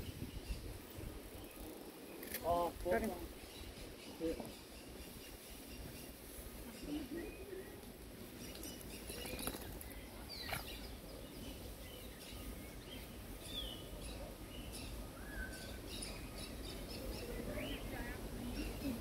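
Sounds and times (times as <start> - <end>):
faint outdoor noise: 0.0 - 19.0
small birds chirping: 0.0 - 19.0.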